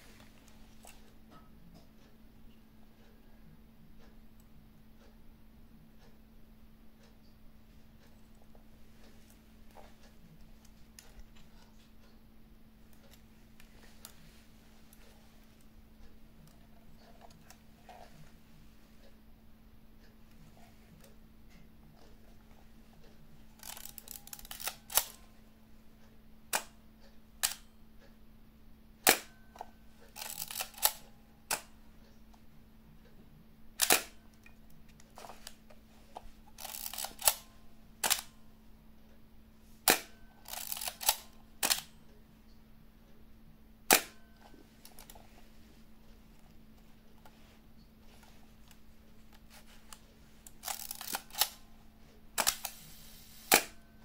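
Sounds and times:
camera shutter clicks: 23.6s - 25.2s, 50.6s - 51.6s, 52.4s - 53.8s
film advance winding rasp: 23.6s - 25.2s, 30.1s - 31.0s, 36.5s - 37.4s, 40.4s - 41.8s, 50.5s - 51.6s.

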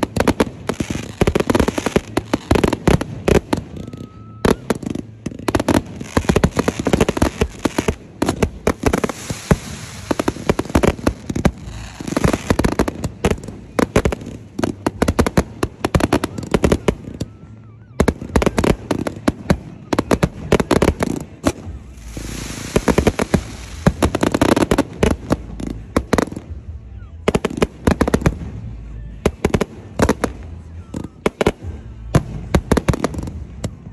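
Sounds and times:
firework whistle: 0.0s - 14.4s
fireworks bangs and crackling: 0.0s - 33.9s.

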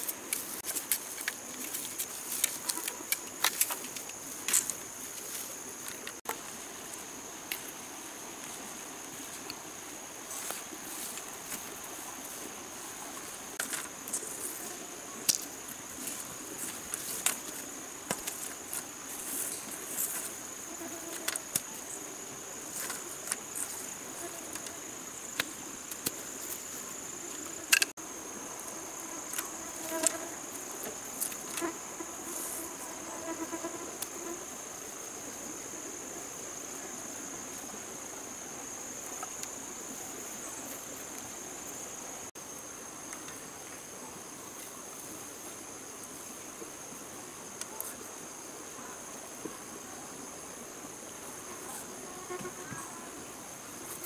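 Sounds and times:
bamboo poles clacking: 0.0s - 6.4s, 16.1s - 20.3s, 27.3s - 28.0s.

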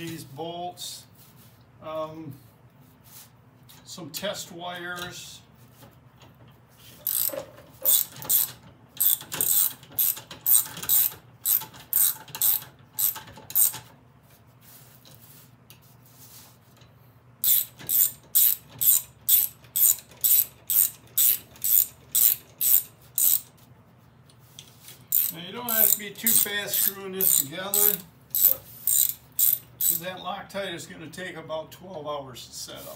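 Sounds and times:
ratchet wrench clicking: 7.0s - 13.9s, 17.4s - 23.5s, 25.1s - 30.0s.

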